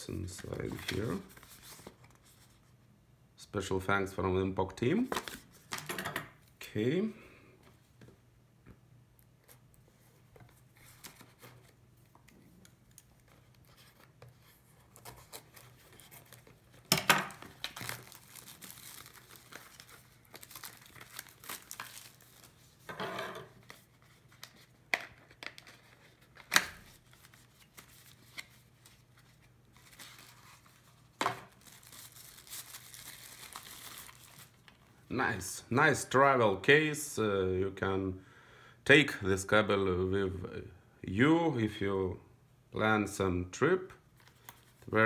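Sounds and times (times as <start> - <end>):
plastic packaging crinkling: 14.9 - 22.9, 23.5 - 34.9.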